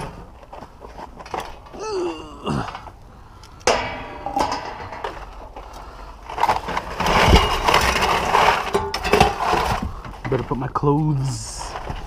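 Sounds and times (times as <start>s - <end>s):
cans and scrap metal clanking: 0.0s - 1.8s, 3.6s - 12.0s
plastic bags rustling: 4.4s - 10.4s.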